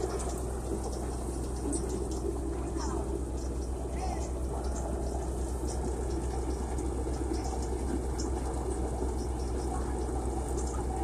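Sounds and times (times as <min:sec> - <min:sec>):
low engine throb: 0:00.0 - 0:11.0.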